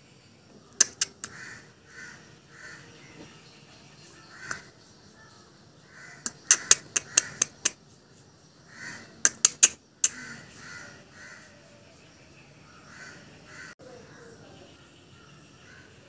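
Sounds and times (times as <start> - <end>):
sharp clicks: 0.8 - 1.4, 4.4 - 4.7, 6.2 - 7.8, 9.2 - 10.2
harsh animal calls: 5.8 - 7.8, 8.7 - 11.6.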